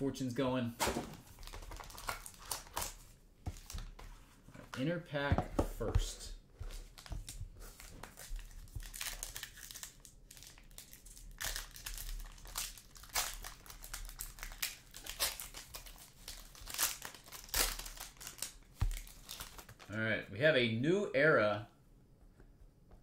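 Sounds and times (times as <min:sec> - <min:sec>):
foil wrapper crinkling: 0:01.3 - 0:03.0, 0:06.8 - 0:20.0.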